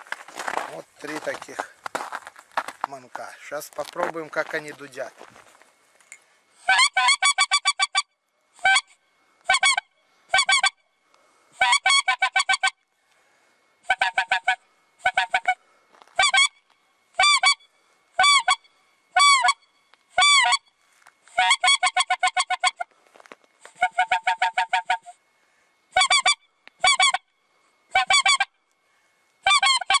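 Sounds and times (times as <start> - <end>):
goose call honking: 6.6 - 8.0, 8.6 - 10.8, 11.6 - 12.8, 13.8 - 22.9, 23.6 - 25.2, 25.9 - 27.3, 27.9 - 28.6, 29.4 - 30.0.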